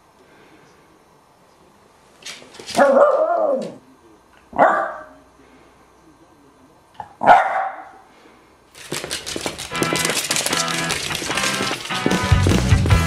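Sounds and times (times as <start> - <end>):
dog barking: 2.8 - 3.8, 4.5 - 5.2, 7.0 - 8.0
music: 9.6 - 13.0.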